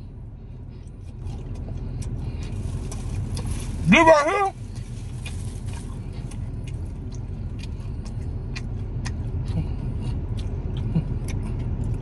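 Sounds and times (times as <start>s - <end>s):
vehicle rumble inside cabin: 0.0s - 12.0s
person eating crunchy food: 1.0s - 12.0s.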